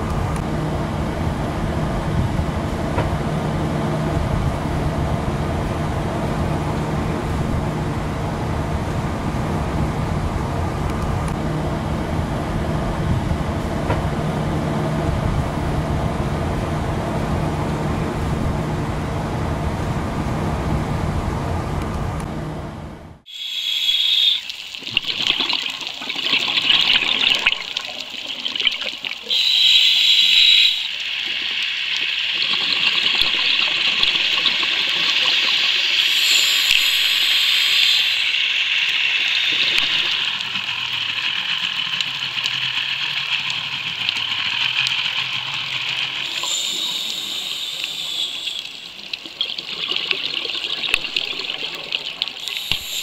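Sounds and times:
steady watery hiss: 23.3 - 53.0
diver exhaling bubbles underwater: 24.8 - 29.3, 46.2 - 53.0.

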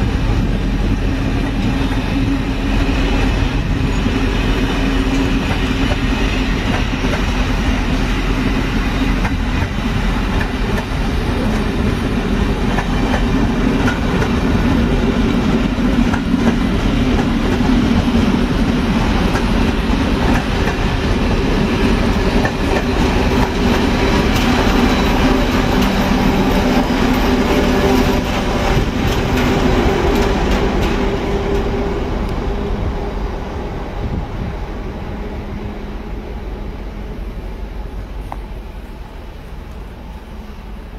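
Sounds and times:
diesel locomotive engine: 0.0 - 40.9
train wheels clattering over rail joints: 8.8 - 31.9.

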